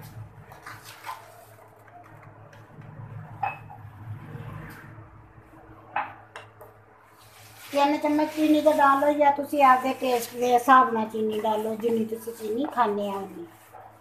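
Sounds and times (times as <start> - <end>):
metal ladle stirring milk: 7.2 - 14.0.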